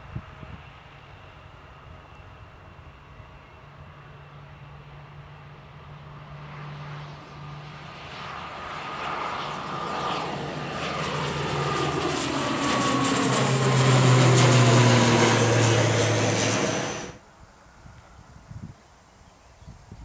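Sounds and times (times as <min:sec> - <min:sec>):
propeller airliner drone: 0:00.0 - 0:19.5
faint wind: 0:00.0 - 0:20.0.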